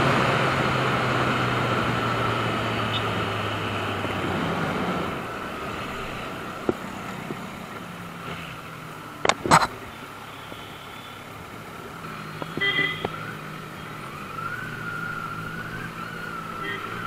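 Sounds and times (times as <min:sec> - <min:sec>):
traffic: 0:00.0 - 0:17.0
vehicle horn honk: 0:12.5 - 0:13.2, 0:16.6 - 0:17.0.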